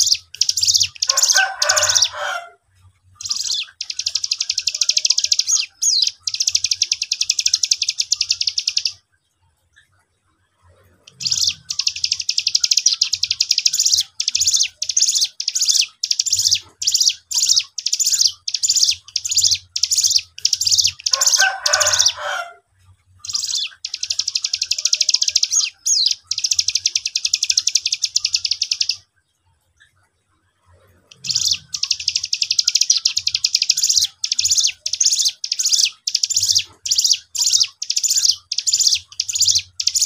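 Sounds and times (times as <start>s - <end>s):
bird singing high buzzing trills: 31.2s - 40.0s.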